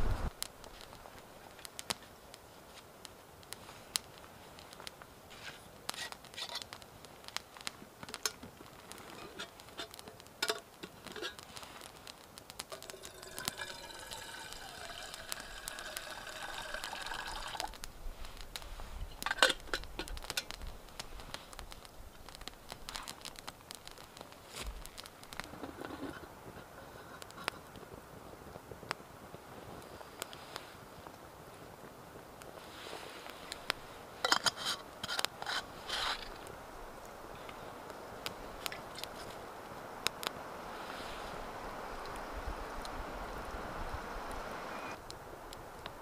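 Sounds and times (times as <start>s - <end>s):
campfire crackling: 0.0s - 46.0s
water pouring from a flask: 12.7s - 17.8s.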